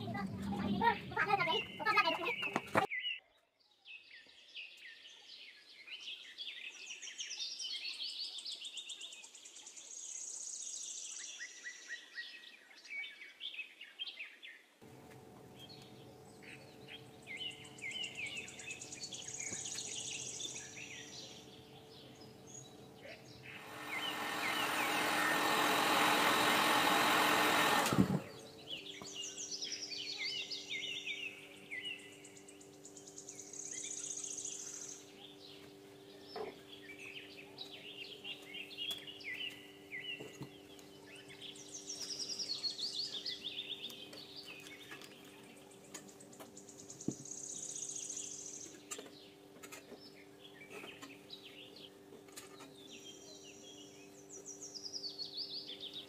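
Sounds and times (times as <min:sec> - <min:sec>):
birds chirping: 0:00.0 - 0:56.0
steady low hum: 0:14.8 - 0:56.0
loud rushing whir: 0:23.4 - 0:28.8.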